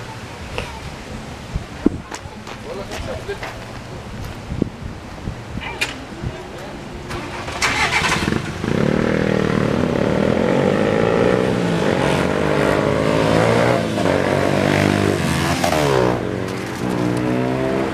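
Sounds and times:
car passing: 0:06.8 - 0:17.9
van accelerating: 0:06.9 - 0:17.9
cars accelerating: 0:07.0 - 0:17.9
motorcycle accelerating: 0:07.1 - 0:17.9.

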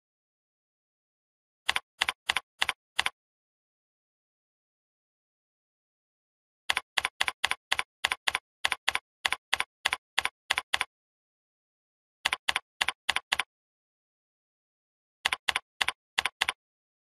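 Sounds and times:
keyboard keys clicking: 0:15.3 - 0:16.6.

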